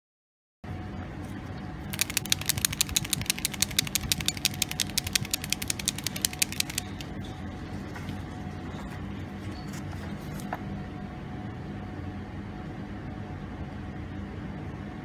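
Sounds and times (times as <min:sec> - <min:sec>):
ball bearings rattling in plastic tube: 0:01.9 - 0:07.2.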